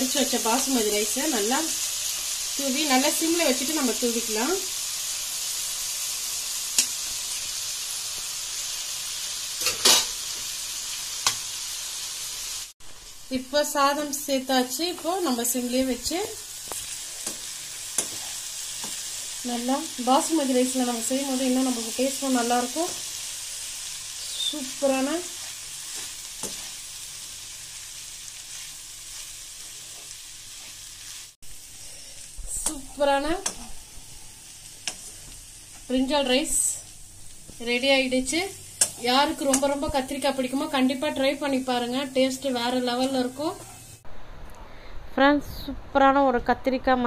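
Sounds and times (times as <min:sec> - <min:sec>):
food sizzling in a pan: 0:00.0 - 0:44.3
spatula scraping a pan: 0:16.7 - 0:19.4, 0:25.2 - 0:27.0, 0:28.4 - 0:31.3.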